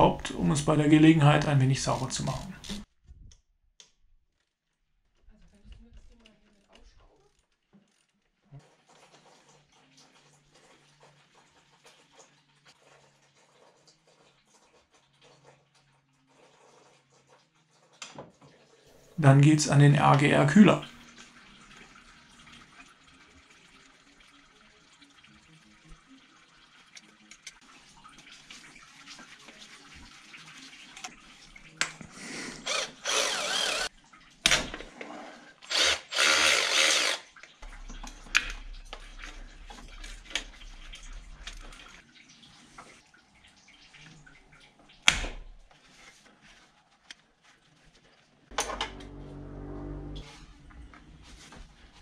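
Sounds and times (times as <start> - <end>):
power tool bursts: 32.6 - 33.9, 35.7 - 37.2.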